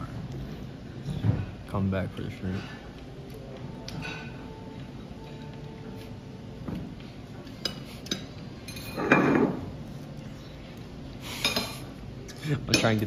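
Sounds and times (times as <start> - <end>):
cutlery and dishes clinking: 2.6 - 4.6, 6.7 - 9.8, 11.3 - 13.0.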